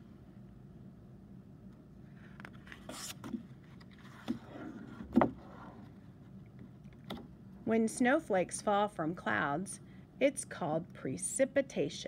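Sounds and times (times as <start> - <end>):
book pages turning: 2.2 - 6.0.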